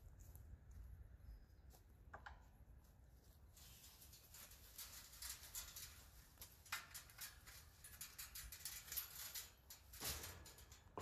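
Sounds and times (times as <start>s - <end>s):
metal gate clicking and rustling: 4.0s - 11.0s.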